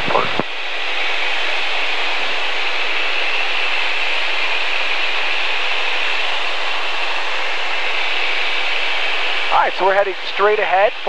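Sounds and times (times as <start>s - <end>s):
light aircraft cabin noise: 0.0s - 5.0s.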